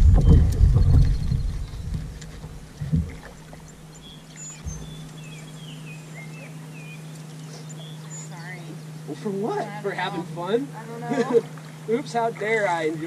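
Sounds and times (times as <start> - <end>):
small birds chirping: 0.0 - 9.4
low steady hum: 0.0 - 13.0.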